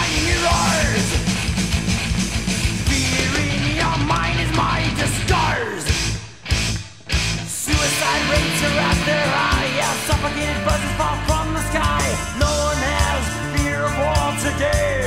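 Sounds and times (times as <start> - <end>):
bass guitar: 0.0 - 15.0
distorted guitars: 0.0 - 15.0
pounding drums: 0.0 - 15.0
lead guitar bending notes: 6.5 - 13.5.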